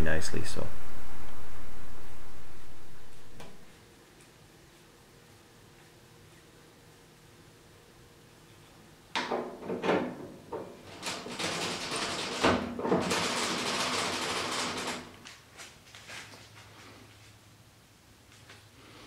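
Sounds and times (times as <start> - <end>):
sharp metal knocks and rattles: 9.2 - 15.1.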